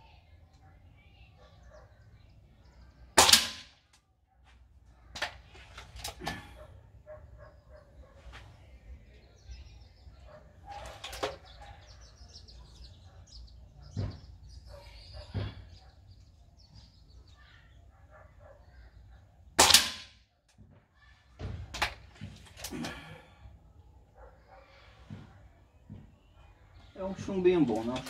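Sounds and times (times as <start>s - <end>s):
air rifle shot: 3.2s - 3.8s, 19.6s - 20.2s.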